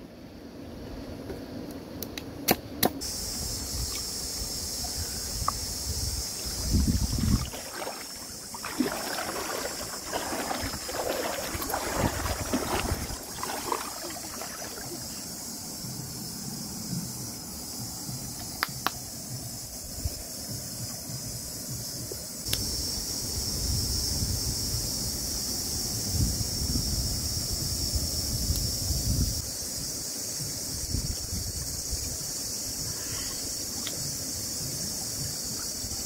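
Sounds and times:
outdoor hiss: 0:00.0 - 0:36.0
rustling over dry ground: 0:06.8 - 0:15.1.

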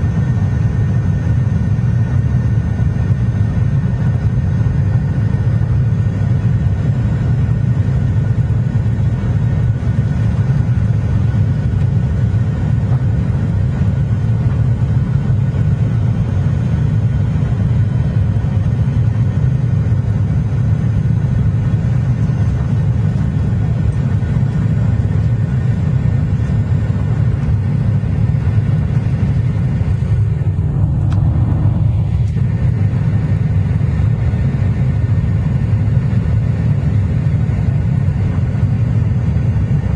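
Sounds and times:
aircraft engine and airflow rumble: 0:00.0 - 0:39.9.

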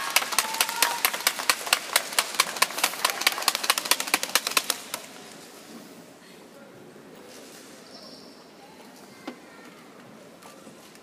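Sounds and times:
people clapping in a hall: 0:00.0 - 0:05.3.

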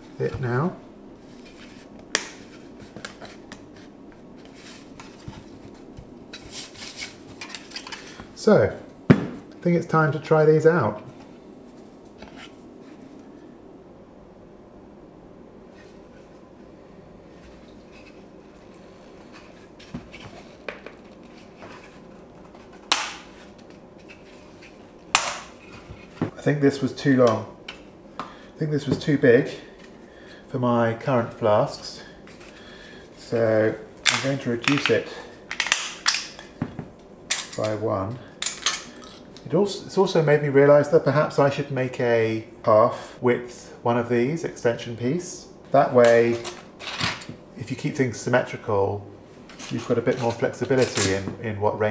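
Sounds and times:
sharp loud plastic snap: 0:22.9 - 0:23.3, 0:25.2 - 0:25.5.

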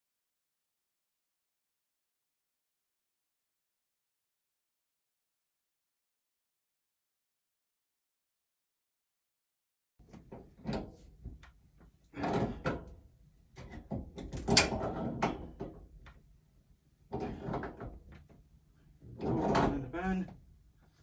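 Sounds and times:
metal scraping and knocking: 0:12.1 - 0:13.0, 0:13.6 - 0:16.1, 0:17.1 - 0:18.4, 0:19.0 - 0:20.4.

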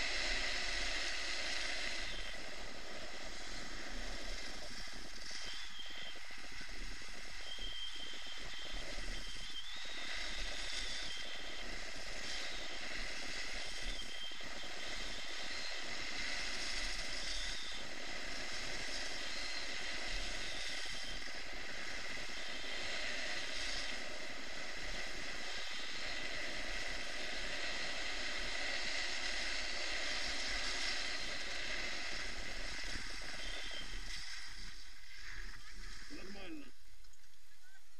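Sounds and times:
skis hissing over snow: 0:00.0 - 0:36.7.

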